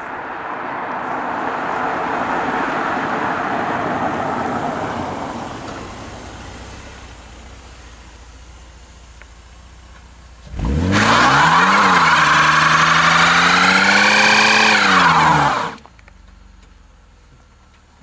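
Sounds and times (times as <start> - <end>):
car engine revving high: 10.4 - 15.8
tyres squealing: 10.9 - 15.8.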